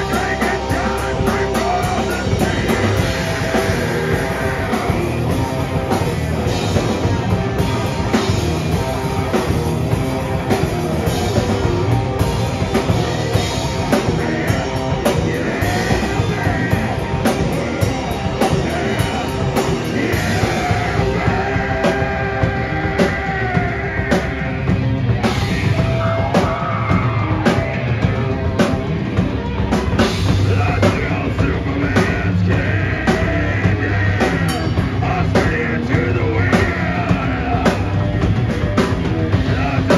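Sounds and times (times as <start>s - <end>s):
person singing into microphone: 0.0s - 6.6s, 12.9s - 24.7s, 30.4s - 38.2s
bass guitar: 0.0s - 39.9s
electric guitars: 0.0s - 39.9s
fast drum kit: 0.0s - 39.9s.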